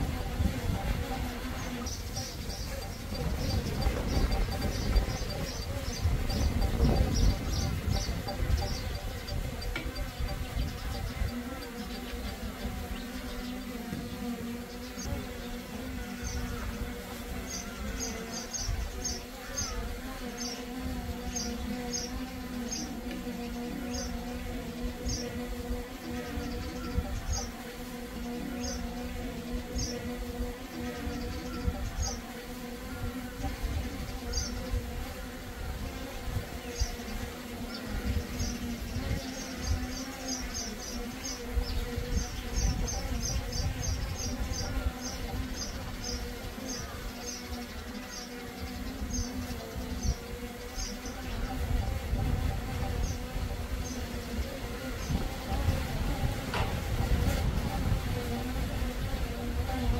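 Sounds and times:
wind rumbling on microphone: 0:00.0 - 0:14.4, 0:23.9 - 0:27.5, 0:28.4 - 0:32.2, 0:32.8 - 0:47.9, 0:48.5 - 0:59.9
drone propellers buzzing: 0:00.0 - 0:20.6.

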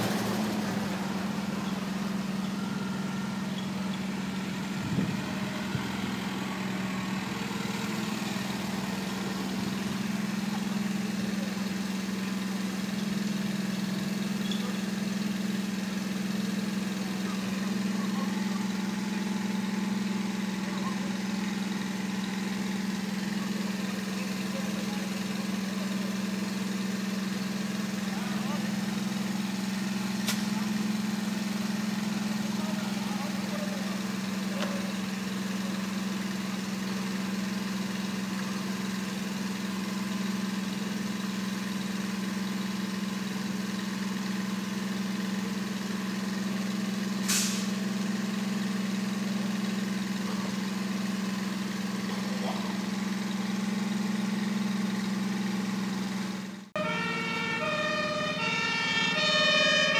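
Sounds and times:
fire engine running: 0:00.0 - 0:59.9
two-tone siren: 0:01.4 - 0:06.6, 0:56.8 - 0:59.9.

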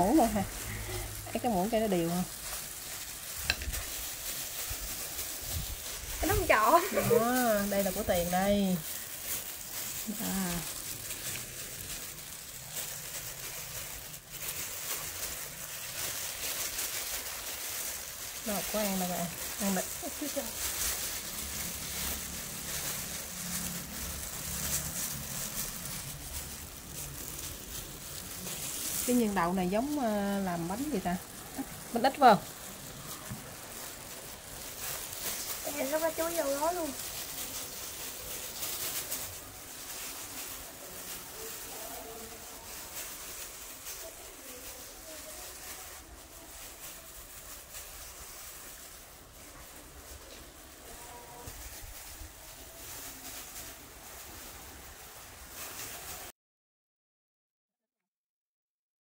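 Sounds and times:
plastic gloves crinkling: 0:00.0 - 0:56.3
faint distant voice: 0:40.8 - 0:43.2.

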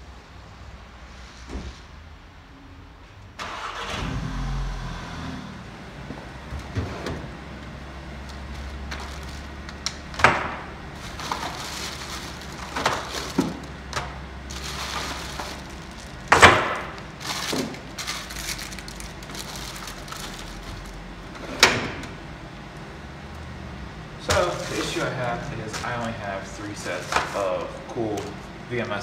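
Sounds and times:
plastic packaging rustling: 0:08.1 - 0:21.4, 0:24.2 - 0:28.4.

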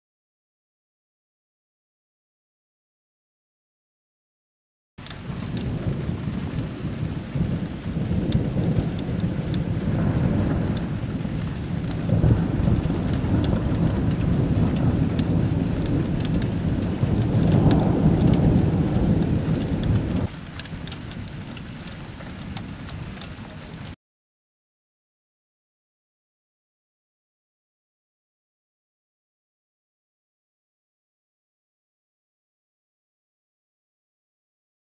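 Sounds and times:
rain: 0:05.0 - 0:24.0
raindrops ticking: 0:05.0 - 0:24.0
thunder rumbling: 0:05.0 - 0:24.0.

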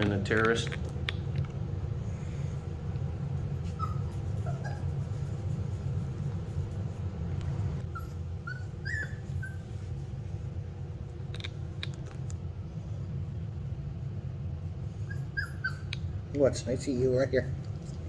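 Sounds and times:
box fan humming: 0:00.0 - 0:18.0
puppies whimpering squeaks: 0:03.7 - 0:04.9, 0:07.9 - 0:09.7, 0:15.0 - 0:16.0.

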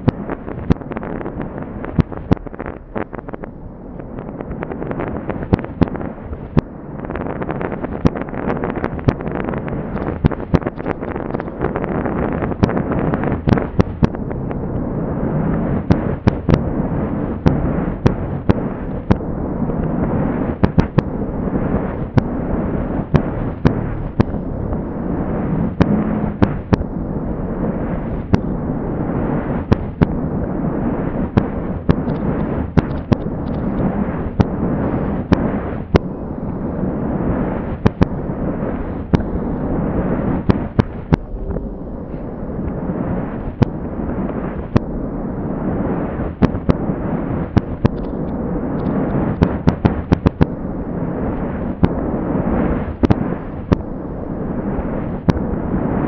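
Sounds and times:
slowed firework cracks: 0:00.0 - 0:56.0
slowed fireworks low rumble: 0:00.0 - 0:56.0.

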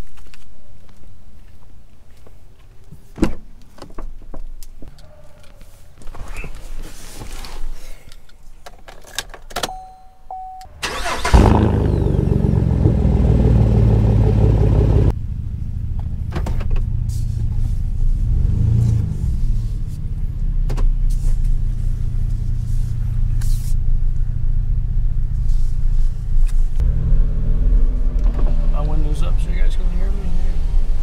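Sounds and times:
truck engine starting and idling: 0:10.4 - 0:29.8.

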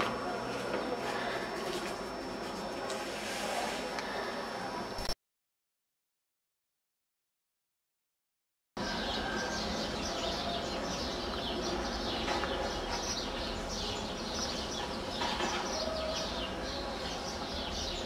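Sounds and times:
outdoor background noise: 0:00.0 - 0:05.2, 0:08.8 - 0:18.0
small birds chirping: 0:08.8 - 0:18.0.

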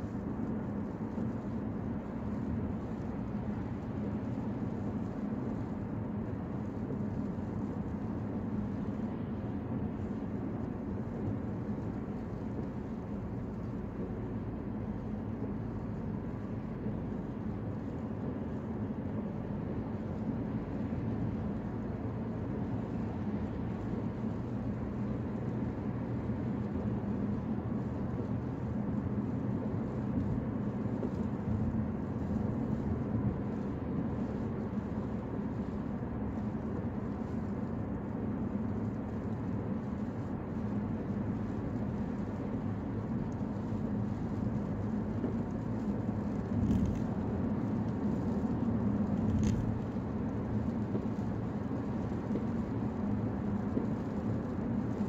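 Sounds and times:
car road noise inside cabin: 0:00.0 - 0:55.0.

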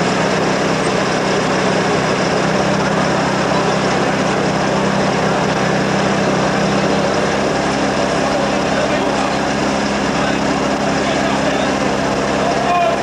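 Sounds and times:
engine idling: 0:00.0 - 0:13.0.

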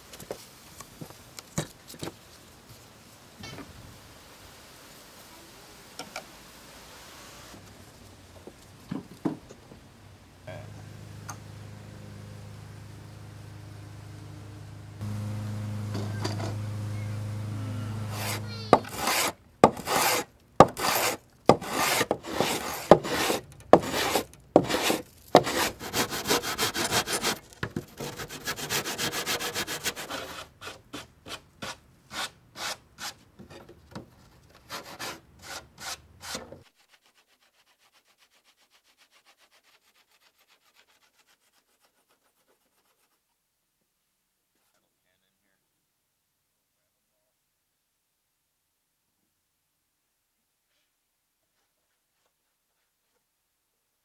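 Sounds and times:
low steady hum: 0:10.0 - 0:19.6
tool scraping along wood: 0:10.9 - 0:33.6, 0:34.5 - 0:43.2.

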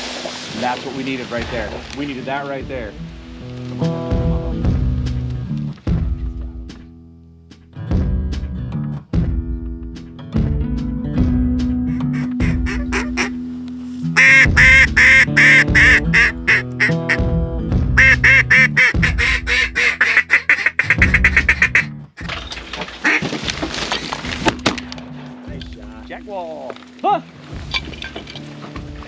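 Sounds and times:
guitar music: 0:02.2 - 0:22.3
duck call quacks: 0:11.9 - 0:13.4, 0:14.2 - 0:17.2, 0:18.0 - 0:21.9, 0:23.0 - 0:23.3.

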